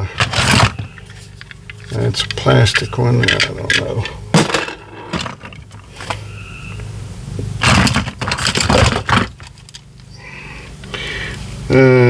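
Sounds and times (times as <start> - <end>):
toys clattering in cardboard box: 0.0 - 6.2, 7.6 - 9.8.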